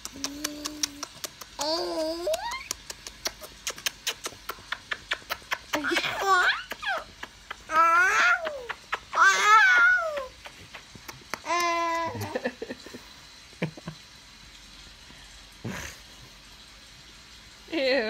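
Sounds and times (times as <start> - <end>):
quick clicking smacks: 0.0 - 5.8
baby laughing and squealing: 5.8 - 10.4, 11.4 - 12.5.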